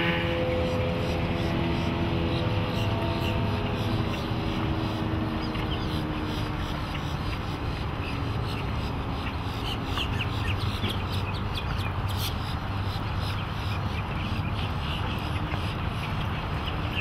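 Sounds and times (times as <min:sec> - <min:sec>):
outboard engine rumble: 0:00.0 - 0:17.0
water and wind noise: 0:00.0 - 0:17.0.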